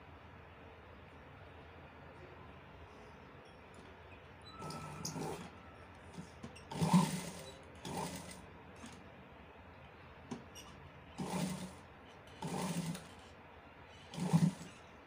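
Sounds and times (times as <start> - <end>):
sewing machine stitching: 4.5 - 9.0, 10.3 - 13.3, 13.9 - 14.9.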